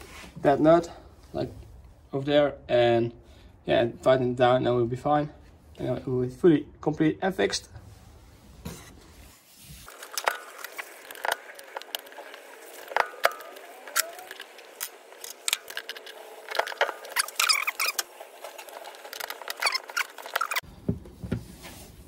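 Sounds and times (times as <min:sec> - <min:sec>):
scraping and rustling: 0:07.9 - 0:20.6
throttle cable clicks and rattles: 0:09.9 - 0:20.6.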